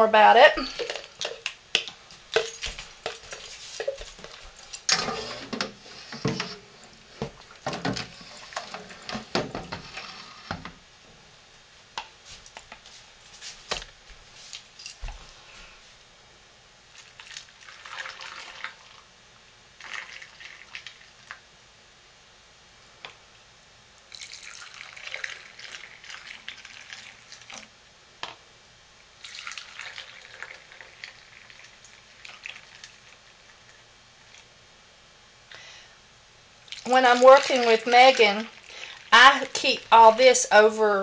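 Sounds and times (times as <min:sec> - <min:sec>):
jars clicking and knocking: 0:00.6 - 0:04.1.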